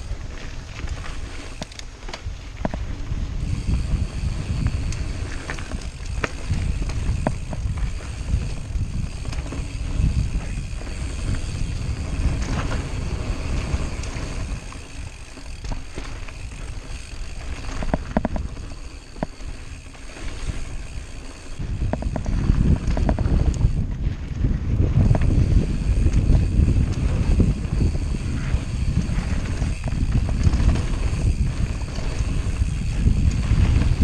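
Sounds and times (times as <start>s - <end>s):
bike clicking and rattling: 0.0s - 34.0s
tyres on dirt trail: 0.0s - 34.0s
wind on microphone: 0.0s - 34.0s.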